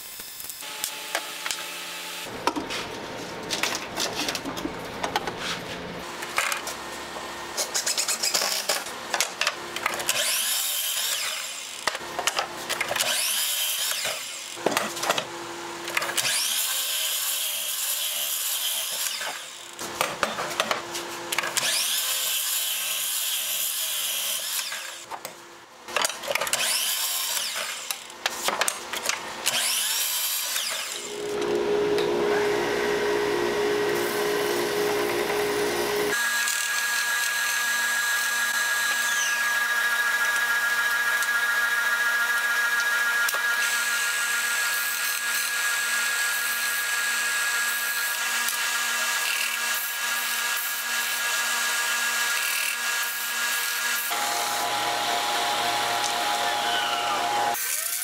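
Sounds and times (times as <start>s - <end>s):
miter saw cutting wood: 0.1s - 2.4s, 6.6s - 25.1s, 26.0s - 58.0s
belt sander humming: 30.4s - 36.2s, 54.0s - 57.6s.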